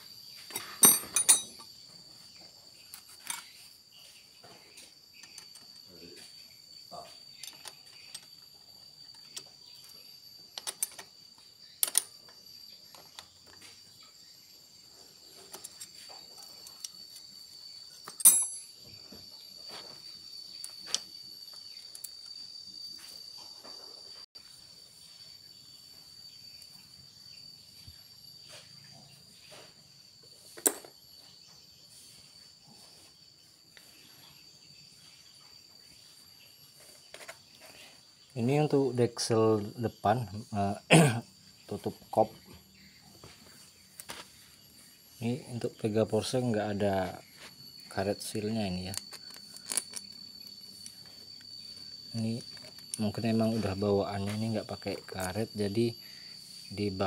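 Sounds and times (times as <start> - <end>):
crickets trilling: 0.0 - 57.0
metal tools clinking: 0.5 - 1.8, 3.2 - 3.6, 7.4 - 8.4, 18.0 - 18.8.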